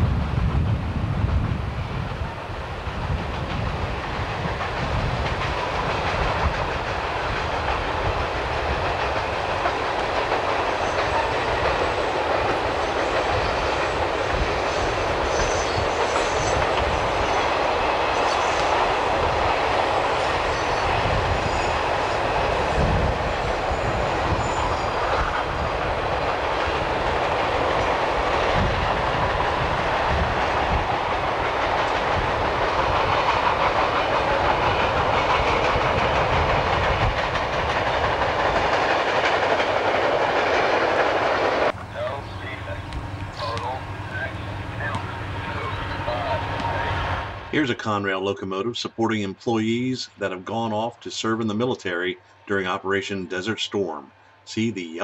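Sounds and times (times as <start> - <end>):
freight train rumbling past: 0.0 - 55.0
wheels clicking over rail joints: 3.0 - 14.5, 24.8 - 43.7.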